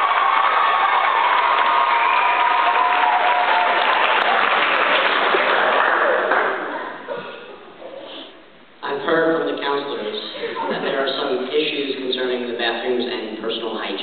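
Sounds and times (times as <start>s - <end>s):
audience applauding and cheering: 0.0s - 7.0s.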